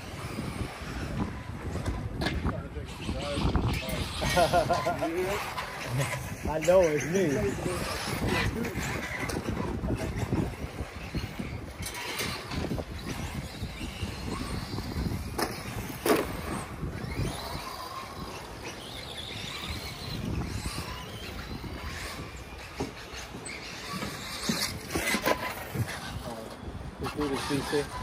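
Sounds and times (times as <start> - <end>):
tyres on dirt: 0.0 - 28.0.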